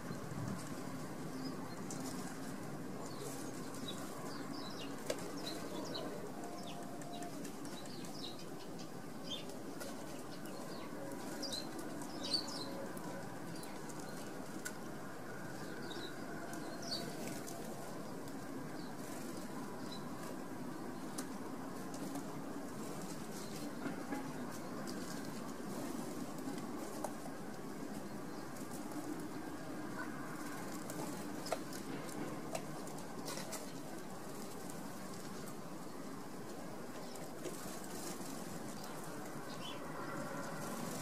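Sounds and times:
small birds chirping: 0.1s - 14.4s, 36.9s - 40.2s.

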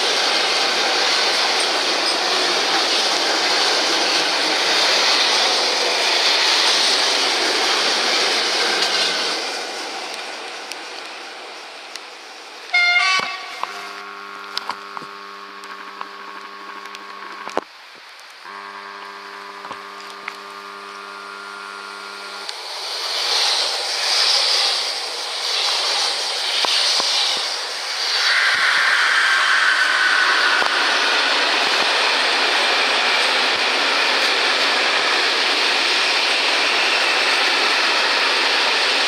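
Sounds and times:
train passing: 0.0s - 14.7s, 19.5s - 39.0s
train horn blasts: 12.7s - 15.5s, 18.5s - 22.4s.

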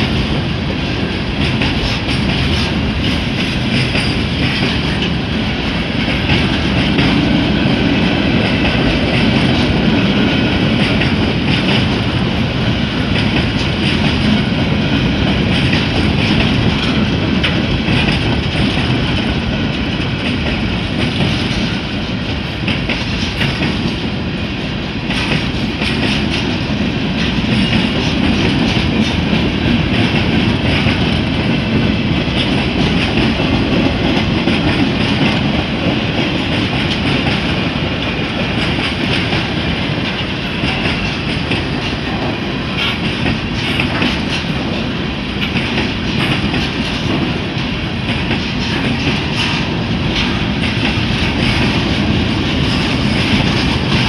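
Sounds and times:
train wheels rumbling on rails: 0.0s - 54.0s
wheels clicking over rail joints: 25.0s - 54.0s.

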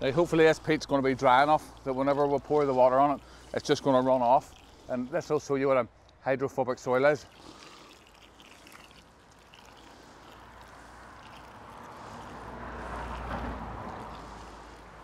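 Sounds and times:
water splashing onto peat: 7.0s - 15.0s
passing vehicle rumble: 9.9s - 15.0s.

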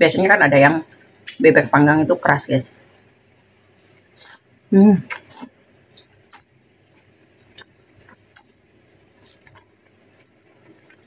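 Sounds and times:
person chewing noodles: 5.1s - 11.0s.

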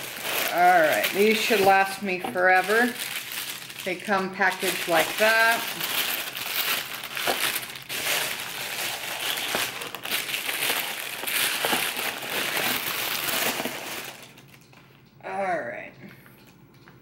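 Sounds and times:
wrapping paper rustling and crackling: 0.0s - 14.9s.

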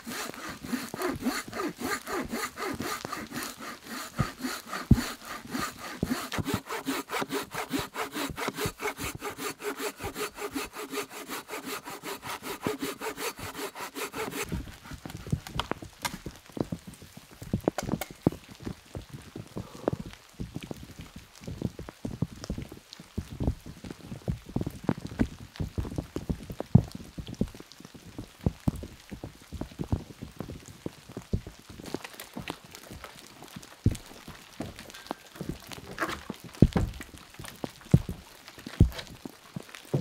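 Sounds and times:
hand saw cutting log: 0.0s - 16.2s, 34.9s - 37.0s, 38.0s - 40.0s
wood knocks and snaps: 17.6s - 18.3s, 33.9s - 37.2s.

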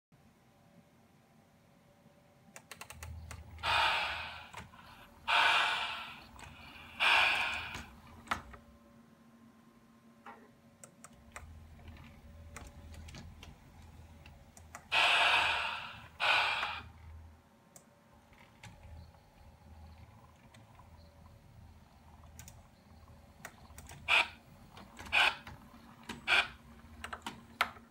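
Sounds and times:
loud hissing bursts: 3.6s - 8.0s, 14.9s - 17.0s
model train motor droning: 3.6s - 8.1s, 14.9s - 17.0s.

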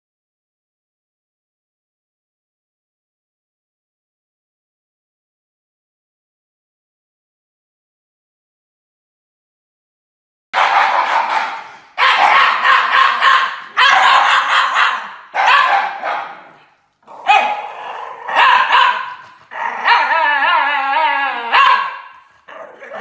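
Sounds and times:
dogs howling: 12.0s - 16.6s, 17.2s - 23.0s.

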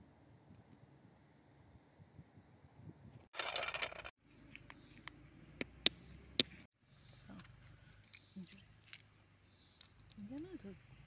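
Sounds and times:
walnut shells cracking with stone: 7.4s - 9.1s, 9.8s - 10.5s.

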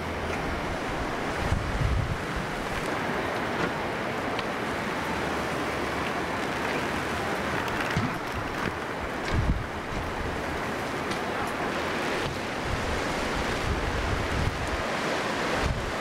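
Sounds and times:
heavy rain on bushes: 0.0s - 16.0s
wind thumps on microphone: 1.3s - 3.8s, 7.6s - 10.5s, 12.2s - 14.9s.

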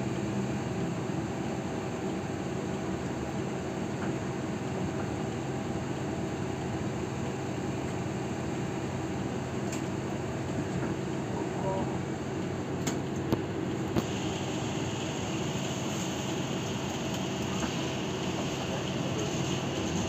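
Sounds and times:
bus engine hum: 0.0s - 20.0s
ventilation fan air rush: 0.0s - 20.0s.

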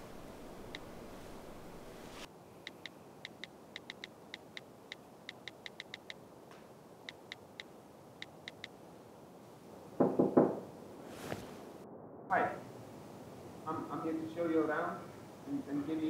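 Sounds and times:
phone keyboard clicks: 2.7s - 6.2s, 8.2s - 8.7s
knocks on a glass door: 10.0s - 10.6s.

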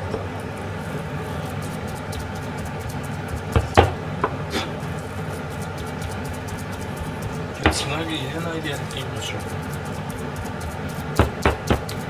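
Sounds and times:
steady low hum: 0.0s - 12.0s
knife chopping on plastic board: 3.4s - 4.4s, 5.6s - 12.0s.

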